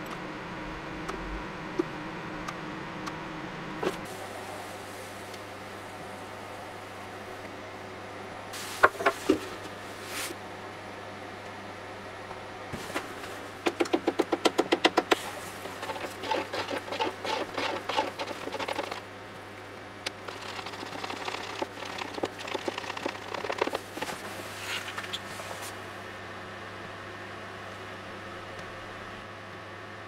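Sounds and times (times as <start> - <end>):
stir stick scraping plastic jug: 15.1 - 19.0, 20.2 - 24.2.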